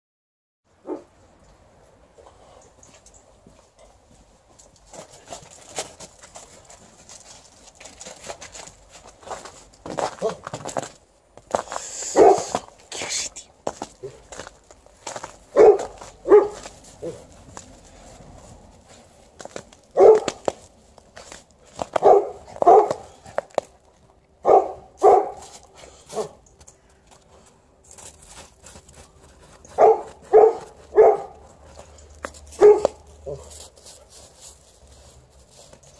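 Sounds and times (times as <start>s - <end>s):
dog barking: 0.8s - 1.1s, 12.1s - 12.6s, 15.5s - 17.2s, 20.0s - 20.4s, 22.0s - 23.2s, 24.4s - 25.5s, 26.1s - 26.4s, 29.7s - 31.4s, 32.5s - 33.5s
footsteps crunching in snow: 3.4s - 35.9s.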